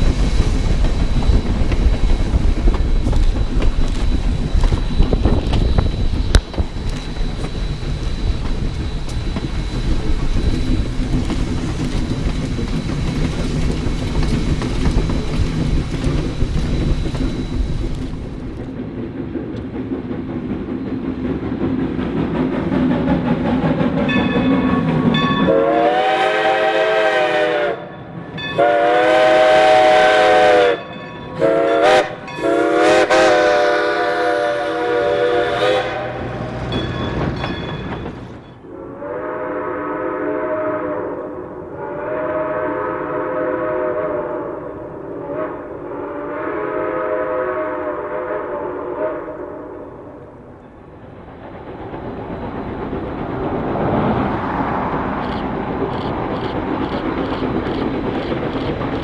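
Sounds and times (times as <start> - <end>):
heavy wind noise: 0.0 - 25.4
train rumbling over bridge: 0.0 - 59.0
steam locomotive whistle blasts: 24.6 - 36.7, 38.6 - 50.0.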